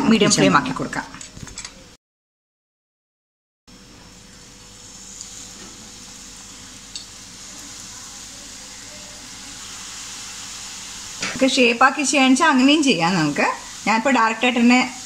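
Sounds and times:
hot oil sizzling: 0:03.8 - 0:15.0.

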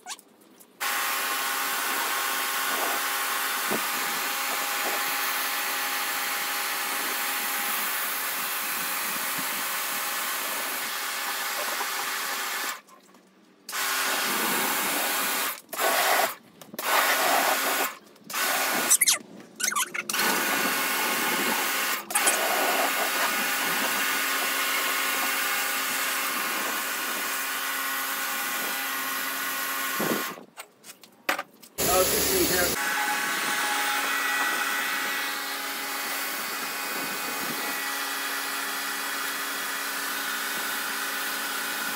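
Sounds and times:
water jet hissing on ground: 0:31.8 - 0:32.8
pressure washer motor humming: 0:31.8 - 0:41.9.

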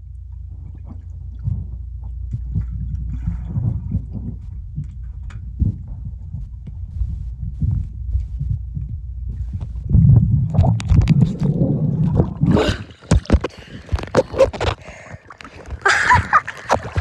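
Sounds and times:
muffled underwater rumble: 0:00.0 - 0:17.0
underwater bubbling: 0:00.0 - 0:17.0
water splashing on microphone: 0:09.4 - 0:17.0.

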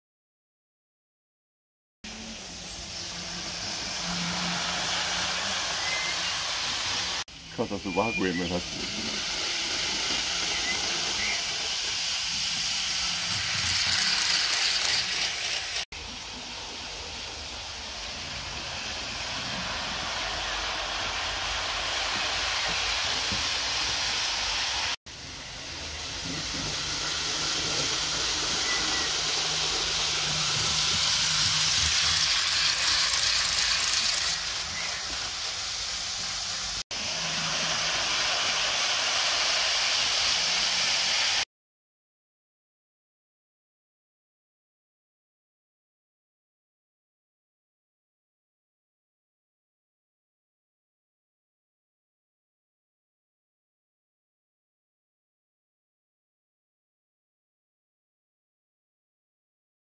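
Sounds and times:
model train running on track: 0:02.1 - 0:41.4.

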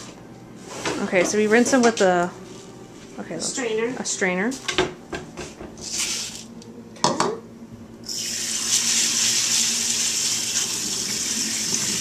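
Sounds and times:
tap water running over lentils: 0:08.5 - 0:12.0.

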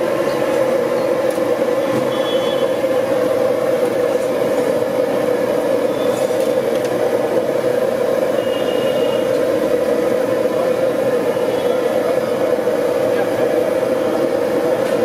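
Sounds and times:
food deep-frying in oil: 0:00.0 - 0:15.0.

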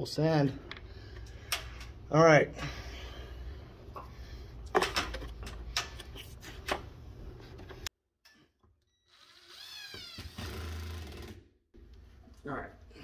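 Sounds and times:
knocks and handling noise: 0:03.9 - 0:07.9
cordless drill driving a screw: 0:09.1 - 0:11.3.

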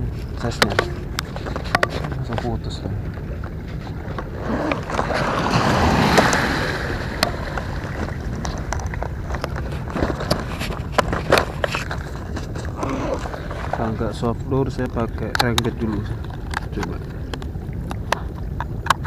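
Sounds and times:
sharp clicks and knocks: 0:00.2 - 0:02.6, 0:15.2 - 0:19.0
waves washing over concrete steps: 0:03.5 - 0:13.8.

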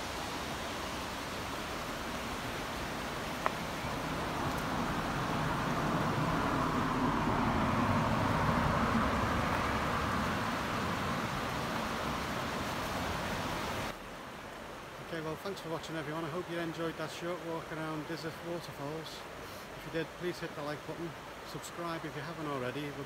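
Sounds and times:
steady rushing hiss: 0:00.0 - 0:23.0
car driving past: 0:03.9 - 0:12.8.

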